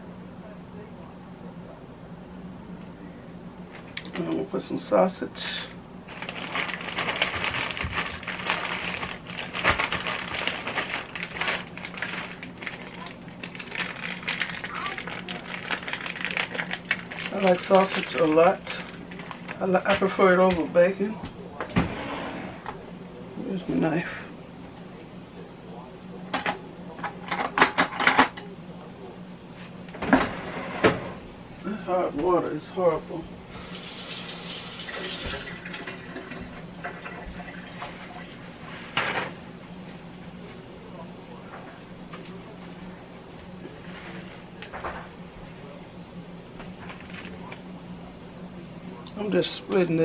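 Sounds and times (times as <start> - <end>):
plastic bag crinkling: 6.1 - 21.2.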